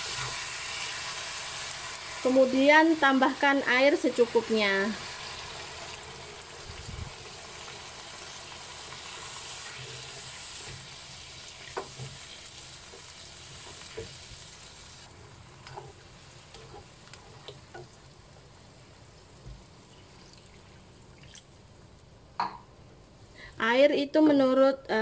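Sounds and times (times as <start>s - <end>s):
food sizzling in a wok: 0.0s - 21.0s
spatula scraping and knocking wok: 8.8s - 14.5s.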